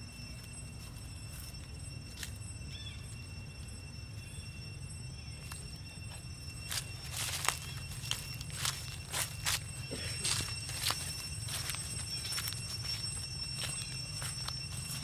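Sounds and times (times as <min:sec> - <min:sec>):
faint high whine: 0:00.0 - 0:15.0
dry leaves rustling and crackling: 0:05.4 - 0:15.0.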